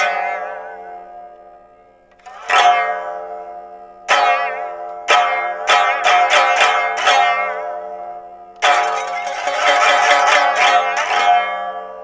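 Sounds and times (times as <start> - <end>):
lute plucked with plectrum: 2.1 - 3.5, 8.6 - 12.0.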